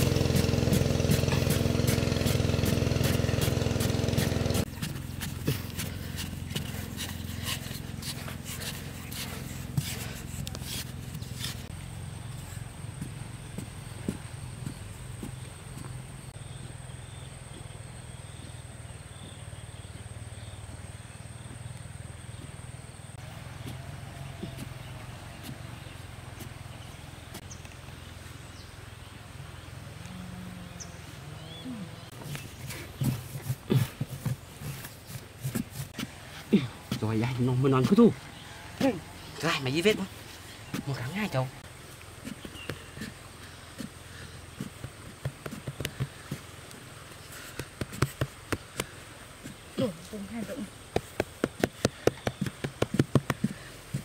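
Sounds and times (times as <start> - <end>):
digging tool scraping sandy soil: 0.0 - 11.8, 32.1 - 41.3
low engine drone: 0.0 - 15.7.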